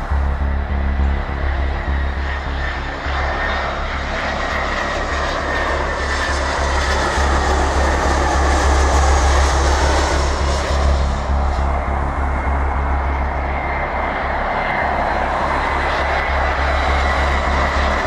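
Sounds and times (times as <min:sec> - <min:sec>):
jet engine noise: 0:00.0 - 0:18.0.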